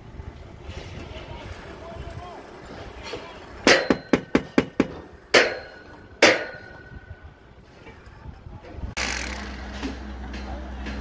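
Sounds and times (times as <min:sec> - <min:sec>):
hammer knocking on formwork: 0:03.7 - 0:06.8
power drill running against concrete: 0:09.0 - 0:09.8.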